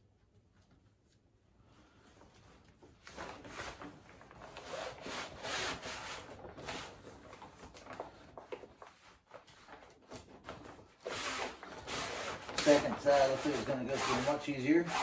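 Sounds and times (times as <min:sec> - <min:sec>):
fabric scraping against pole: 0:11.0 - 0:15.0.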